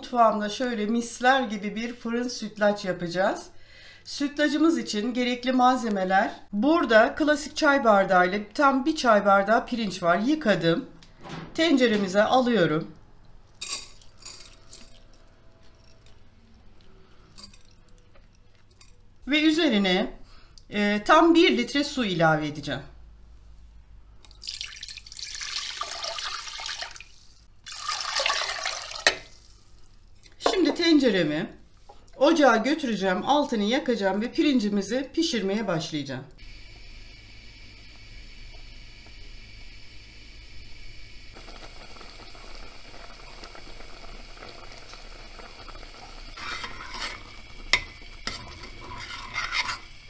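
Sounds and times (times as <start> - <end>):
water pouring into metal pot: 24.3 - 30.0, 41.4 - 50.0
rice boiling and bubbling: 24.3 - 30.5, 36.4 - 50.0.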